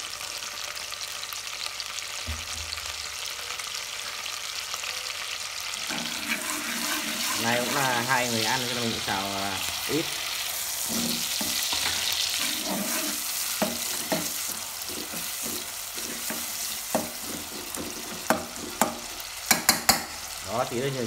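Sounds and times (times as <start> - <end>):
food sizzling in hot oil: 0.0 - 21.0
metal spoon scraping and clinking pot: 5.9 - 8.0, 10.8 - 20.2.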